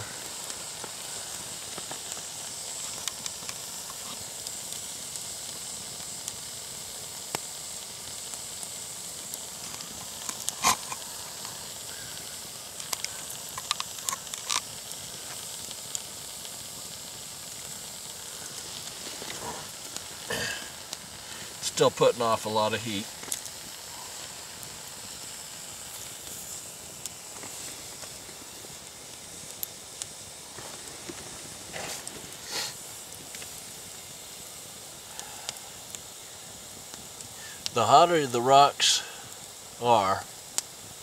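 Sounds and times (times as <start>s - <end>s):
hot rock sizzling in water: 0.0s - 41.0s
sharp pops: 9.6s - 12.1s, 12.7s - 16.0s.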